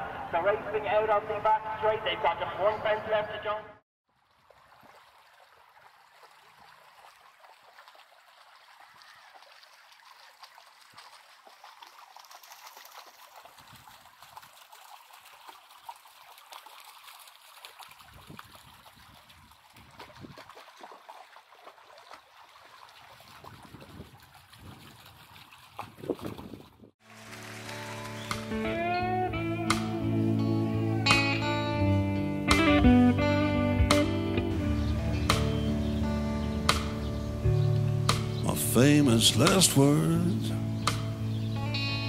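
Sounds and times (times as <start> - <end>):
music: 27.1 - 42.0.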